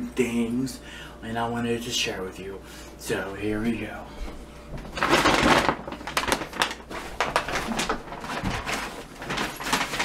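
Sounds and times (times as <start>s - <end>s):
package rustling and crinkling: 4.7s - 10.0s.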